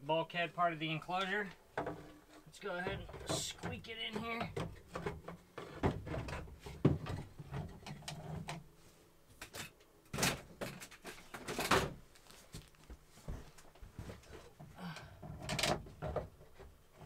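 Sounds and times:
wood knocking in cabinet: 0:02.9 - 0:07.3.

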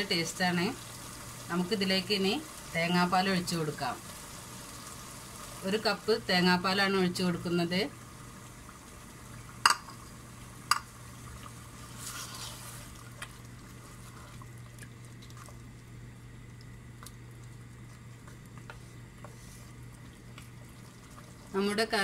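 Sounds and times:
spoon knocking against pot: 0:09.6 - 0:09.9.

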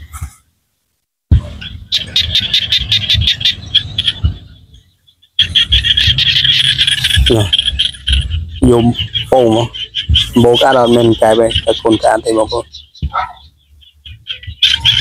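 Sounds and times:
frogs calling: 0:01.4 - 0:15.0
wind on microphone: 0:05.4 - 0:15.0
man speaking: 0:07.1 - 0:07.8, 0:08.6 - 0:12.7.

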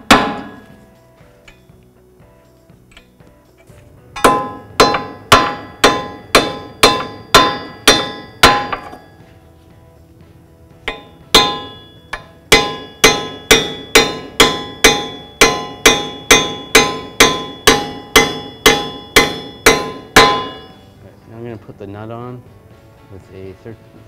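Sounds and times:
hammer striking metal: 0:00.0 - 0:00.8, 0:04.2 - 0:09.2, 0:10.8 - 0:20.9.

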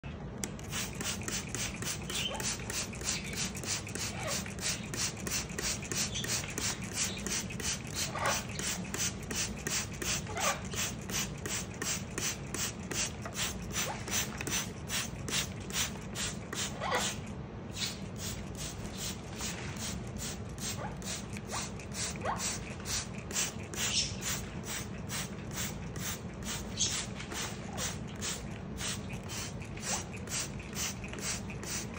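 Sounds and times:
trigger spray bottle squirting: 0:00.4 - 0:17.2, 0:17.8 - 0:31.9
parrot calls: 0:05.7 - 0:08.9.

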